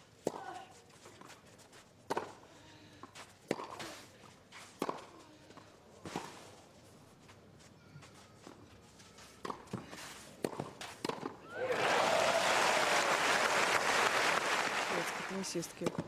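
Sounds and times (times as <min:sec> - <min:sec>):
tennis racket hitting ball: 0:03.5 - 0:03.9, 0:04.8 - 0:05.1, 0:09.4 - 0:11.4.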